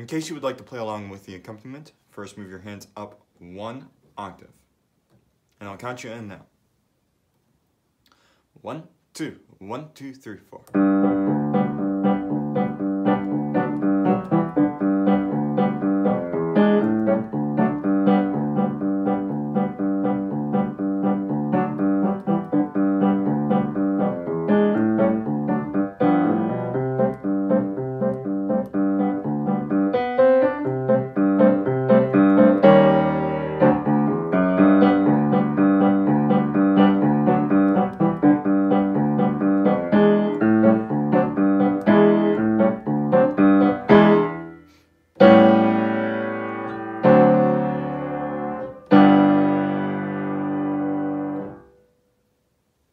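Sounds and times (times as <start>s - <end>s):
acoustic piano playing: 10.7s - 51.9s.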